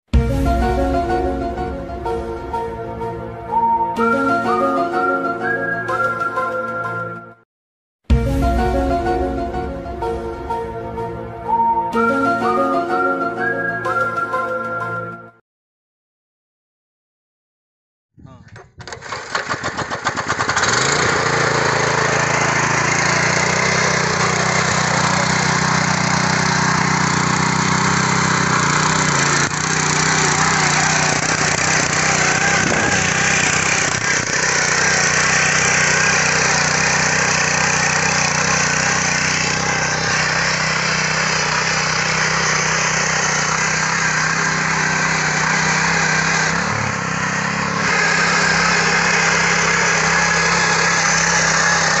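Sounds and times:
power tiller engine running: 0:18.5 - 0:52.0.

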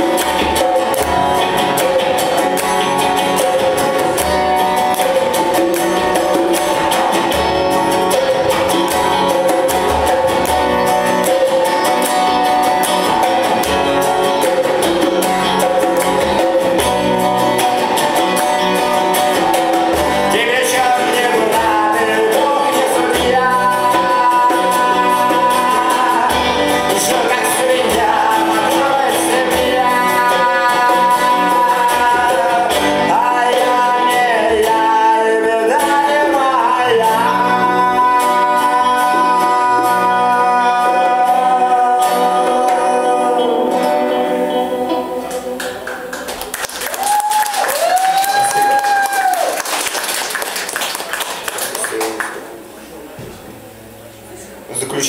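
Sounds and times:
hand drum beat: 0:00.0 - 0:41.3
acoustic band playing: 0:00.0 - 0:55.0
man singing: 0:19.1 - 0:45.9.

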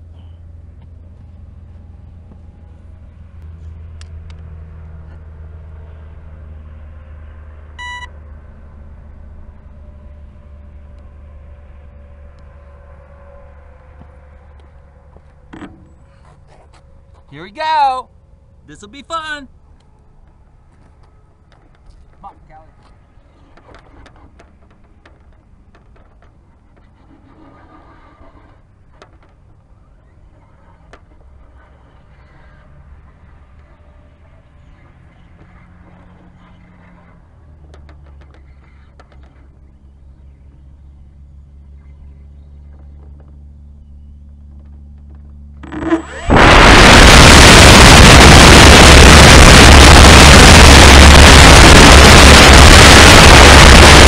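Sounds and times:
short electronic beep: 0:07.8 - 0:08.1
steady low hum: 0:38.3 - 0:54.0
wind rumbling on microphone: 0:44.4 - 0:54.0.

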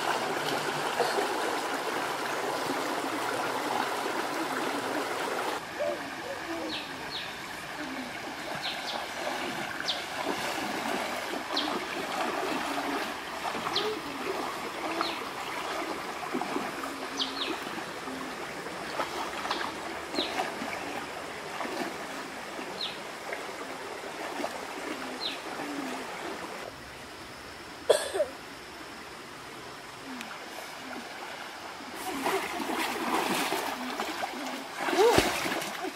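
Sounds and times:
splashing of wading people: 0:00.0 - 0:25.8, 0:31.8 - 0:35.9
rocky stream running: 0:00.0 - 0:27.4, 0:28.5 - 0:35.9.

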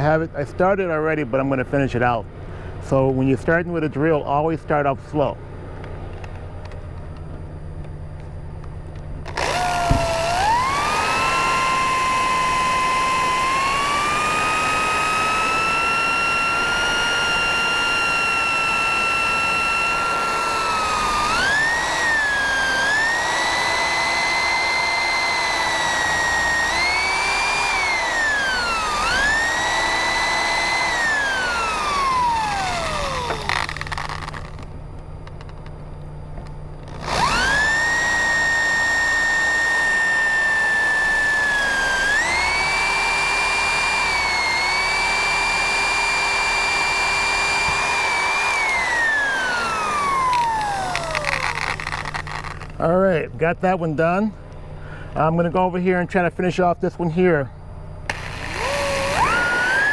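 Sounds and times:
electric drill whine: 0:09.2 - 0:34.7, 0:36.7 - 0:52.9, 0:58.0 - 0:59.9.

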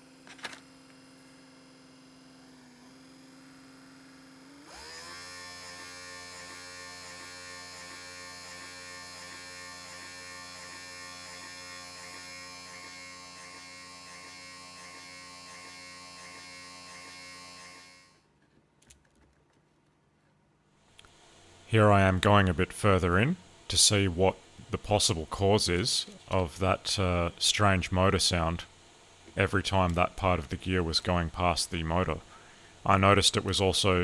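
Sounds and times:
electric motor whining: 0:00.6 - 0:18.2
steady hum: 0:20.6 - 0:34.0.

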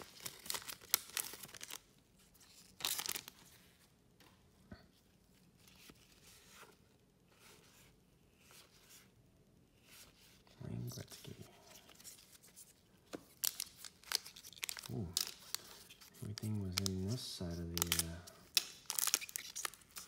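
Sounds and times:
cards rustling: 0:00.0 - 0:01.8, 0:02.4 - 0:03.7, 0:11.0 - 0:20.0
foil wrapper tearing and crinkling: 0:00.0 - 0:01.8, 0:02.5 - 0:03.4, 0:13.3 - 0:20.0.

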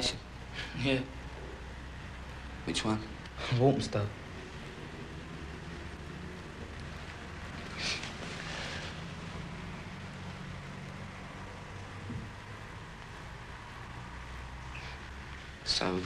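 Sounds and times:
constant hiss: 0:00.0 - 0:16.0
short breathy noise: 0:14.7 - 0:15.1.

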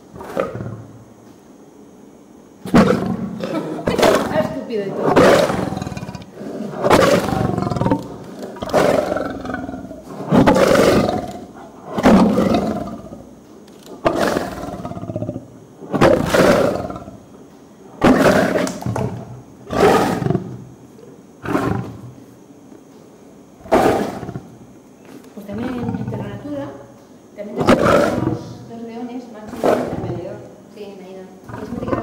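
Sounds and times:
lion roaring: 0:00.1 - 0:01.0, 0:02.6 - 0:13.3, 0:13.9 - 0:17.2, 0:18.0 - 0:20.6, 0:21.4 - 0:22.2, 0:23.6 - 0:24.6, 0:25.5 - 0:26.4, 0:27.6 - 0:28.4, 0:29.5 - 0:30.5, 0:31.4 - 0:32.0.

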